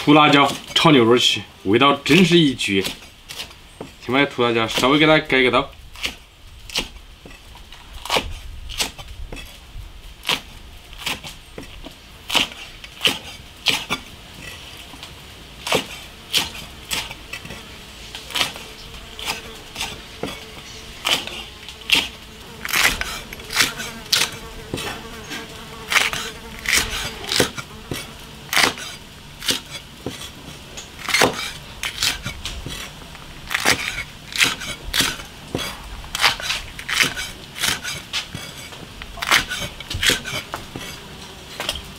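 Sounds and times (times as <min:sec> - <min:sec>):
faint buzzing hum: 0:13.9 - 0:41.9
knife chopping on cutting board: 0:18.3 - 0:18.6, 0:21.0 - 0:25.0, 0:25.9 - 0:30.3, 0:31.1 - 0:32.9.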